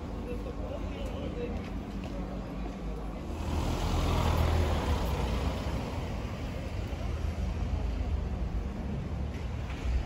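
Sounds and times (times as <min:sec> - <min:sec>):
street traffic noise: 0:00.0 - 0:10.0
car driving past: 0:03.3 - 0:06.8.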